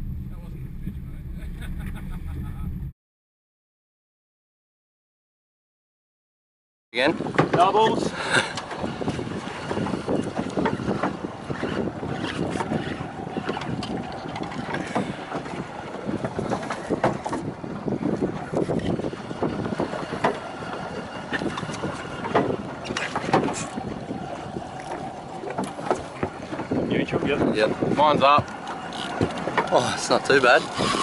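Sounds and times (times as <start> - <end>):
water splashing against boat hull: 7.0 - 31.0
wind buffeting microphone: 7.0 - 31.0.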